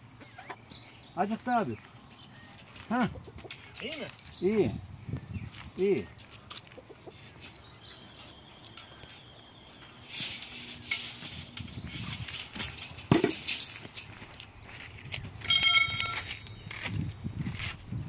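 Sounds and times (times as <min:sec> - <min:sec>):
metal rods scraping and rattling: 0:03.0 - 0:04.6, 0:10.0 - 0:14.4, 0:15.4 - 0:16.6.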